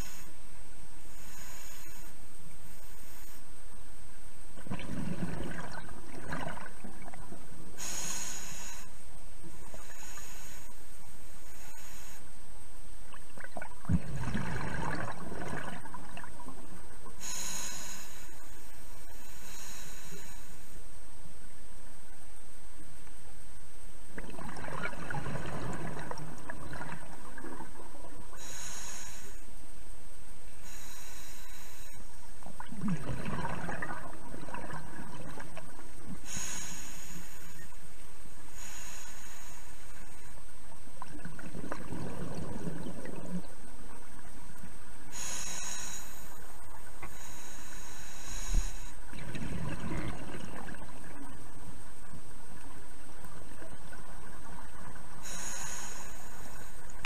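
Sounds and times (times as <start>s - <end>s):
hissing regulator inhalations: 1.1s - 3.4s, 7.8s - 9.0s, 9.7s - 12.3s, 17.2s - 20.8s, 28.3s - 29.5s, 30.6s - 32.1s, 36.2s - 37.8s, 38.5s - 40.3s, 45.1s - 49.0s, 55.2s - 56.8s
gurgling exhaled bubbles: 4.6s - 7.4s, 13.2s - 16.6s, 24.2s - 28.0s, 32.5s - 35.7s, 41.0s - 43.6s, 49.1s - 51.4s.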